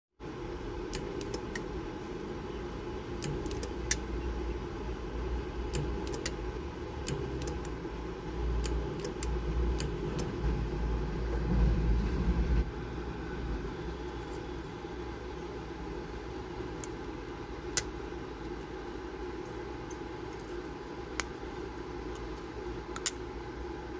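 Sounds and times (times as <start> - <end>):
steady low hum: 0.2 - 23.9
spot welder clicks and snaps: 3.2 - 4.1, 5.7 - 6.4, 7.0 - 7.8, 8.6 - 10.3.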